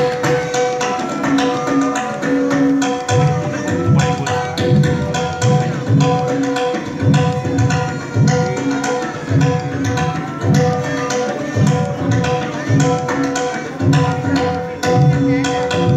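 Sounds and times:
bowed sarangi melody: 0.0s - 15.9s
sharp tabla strokes: 0.0s - 15.9s
deep tabla bass strokes: 3.1s - 10.9s.

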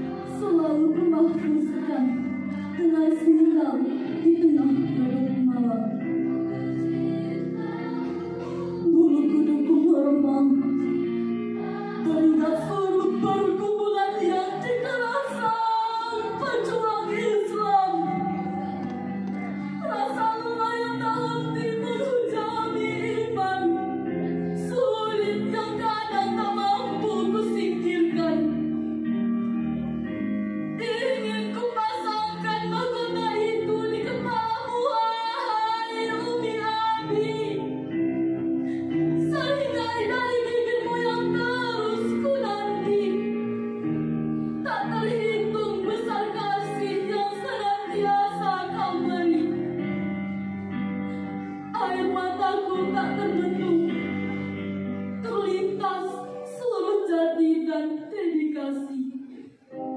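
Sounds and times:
instrumental accompaniment: 0.0s - 56.9s, 59.3s - 59.9s
girls singing together: 6.0s - 10.3s, 11.5s - 23.8s.

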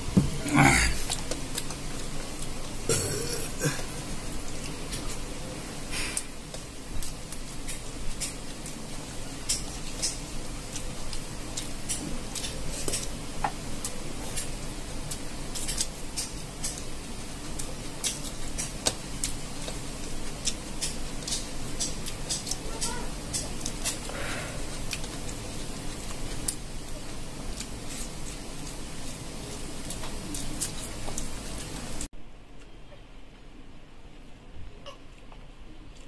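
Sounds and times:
fan hum: 0.0s - 36.0s
chewing and lip-smacking: 15.1s - 28.8s.

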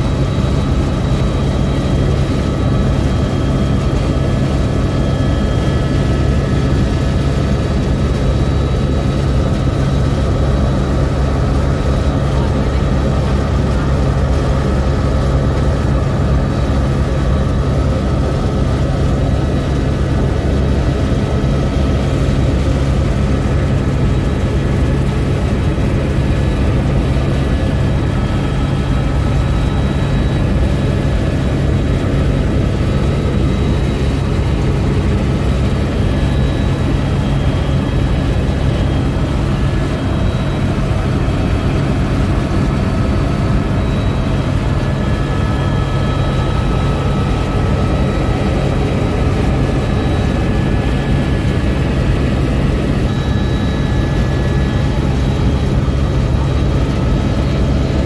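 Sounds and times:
helicopter rotor and engine drone: 0.0s - 58.0s.

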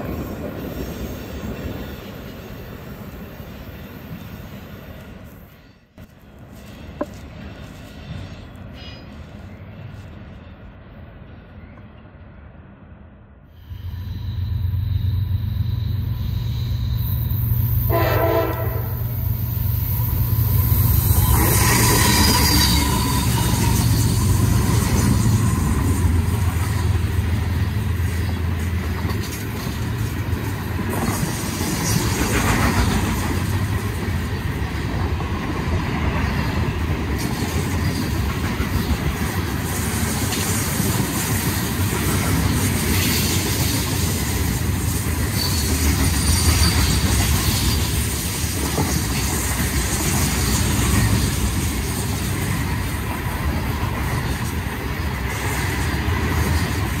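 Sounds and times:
diesel locomotive engine hum: 0.0s - 57.0s
wheels clattering on rails: 20.4s - 57.0s.

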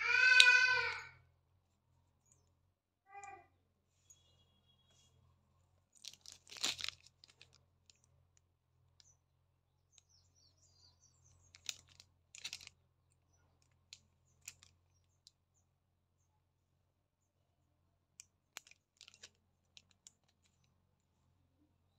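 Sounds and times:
packaging crinkling rustle: 5.9s - 8.0s, 11.5s - 12.7s, 18.6s - 20.6s.

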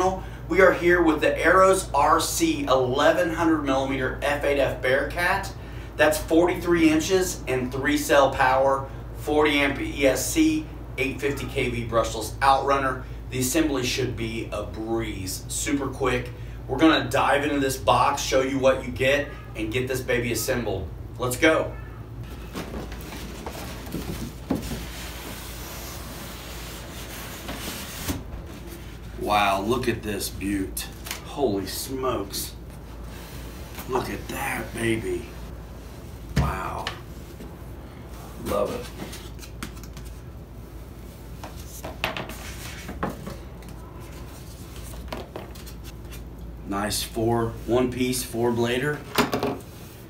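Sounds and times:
cardboard rubbing on cardboard: 22.8s - 29.1s.

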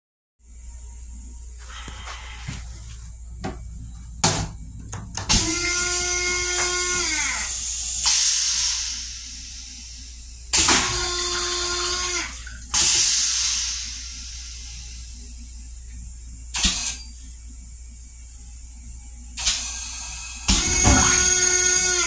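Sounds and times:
toilet flushing with motor whine: 0.4s - 22.0s
water hissing: 5.3s - 15.2s.

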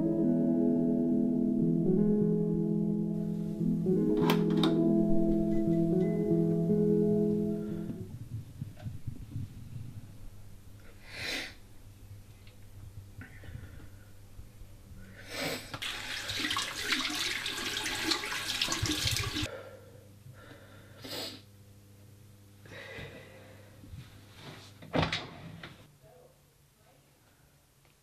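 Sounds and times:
faint low hum: 3.2s - 15.8s
tap water running into sink: 15.8s - 19.5s.

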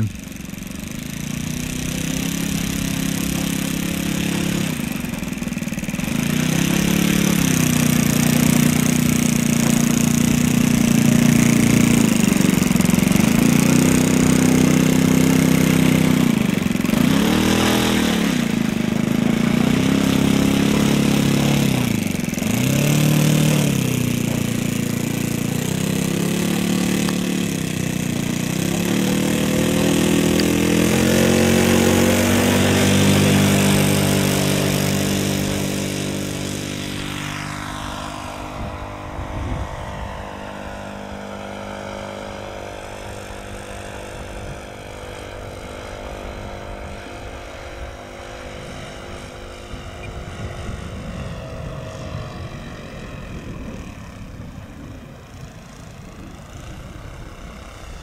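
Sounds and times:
model airplane engine running: 0.0s - 58.0s.

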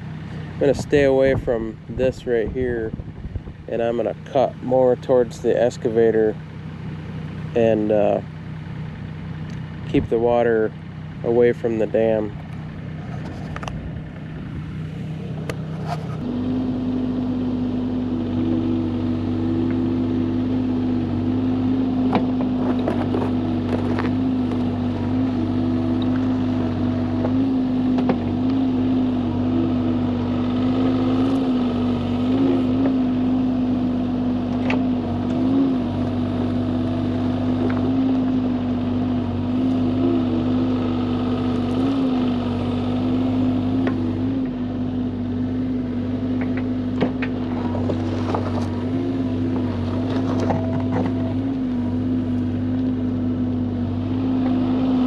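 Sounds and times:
excavator diesel engine: 0.0s - 55.0s.

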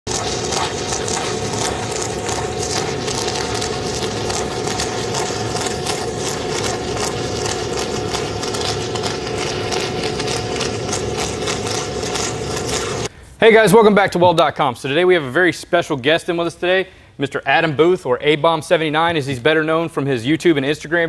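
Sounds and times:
welding arc crackling and sizzling: 0.0s - 13.1s
continuous hum: 0.0s - 13.4s.

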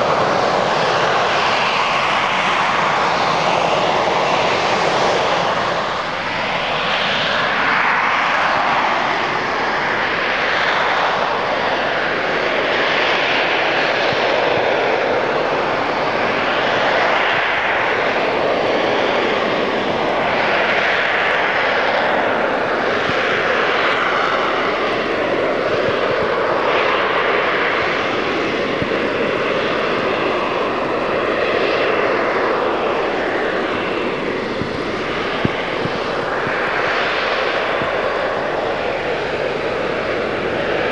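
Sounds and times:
jet engine roar: 0.0s - 40.9s
wavering jet whine: 0.0s - 40.9s.

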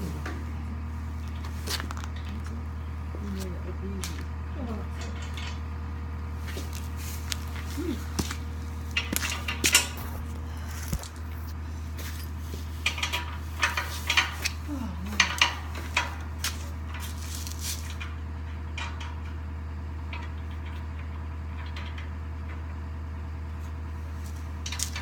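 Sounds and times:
low hum: 0.0s - 22.8s
metal bolts and tools clanking: 5.0s - 5.6s, 6.5s - 10.2s.

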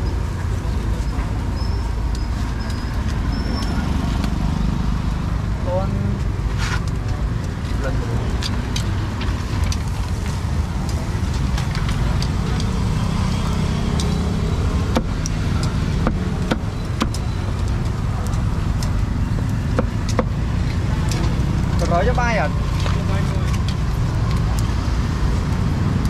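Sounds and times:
city traffic rumble: 0.0s - 26.0s
sharp clicks and clatters: 6.2s - 26.0s.

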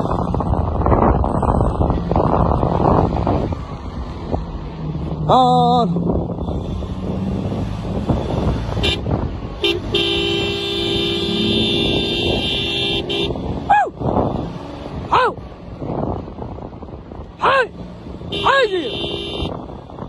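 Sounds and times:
engine and tyres rumbling on sand: 0.0s - 20.0s
car horn blast: 8.8s - 13.4s, 18.3s - 19.6s.

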